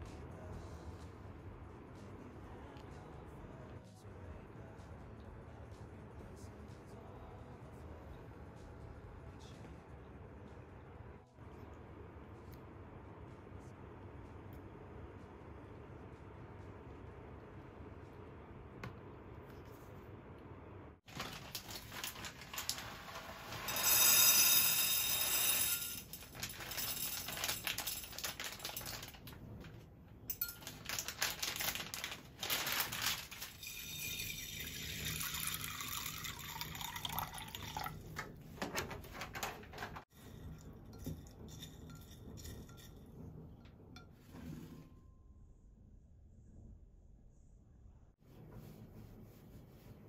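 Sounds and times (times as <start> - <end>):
beans clattering on glass: 22.5 - 29.1, 33.3 - 37.9.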